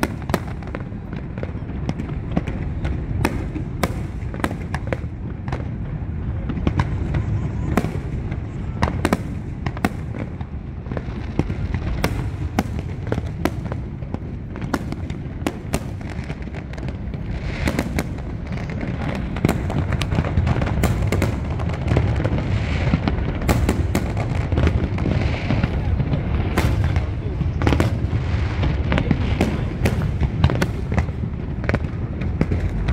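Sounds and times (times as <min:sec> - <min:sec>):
fireworks bangs and crackles: 0:00.0 - 0:32.9
low rumble: 0:24.4 - 0:32.9.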